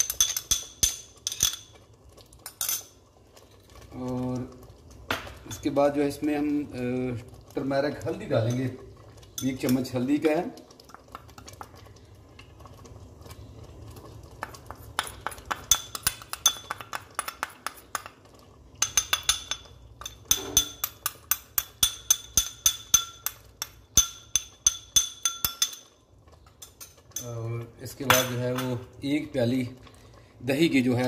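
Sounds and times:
metal spoon clinking glass bowl: 0.0s - 1.8s, 2.4s - 3.0s, 8.4s - 8.7s, 9.3s - 9.9s, 15.0s - 18.1s, 18.8s - 26.0s, 28.0s - 28.8s.

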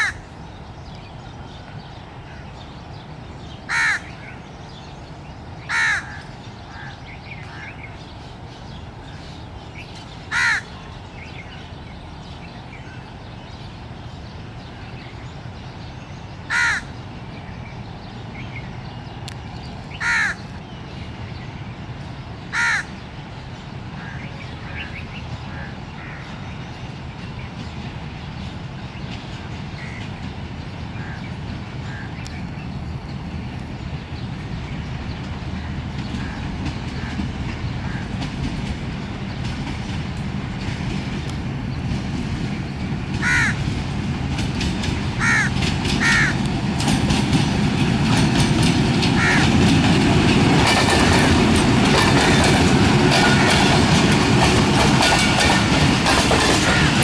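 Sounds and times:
crows cawing: 0.0s - 0.3s, 3.7s - 4.2s, 5.6s - 7.8s, 10.3s - 10.8s, 16.5s - 17.0s, 20.0s - 20.4s, 22.5s - 22.9s, 24.0s - 24.2s, 25.5s - 26.3s, 31.8s - 32.2s, 43.2s - 43.6s, 45.2s - 46.4s, 49.2s - 49.6s, 56.6s - 57.0s
train rumbling past: 0.0s - 57.0s.

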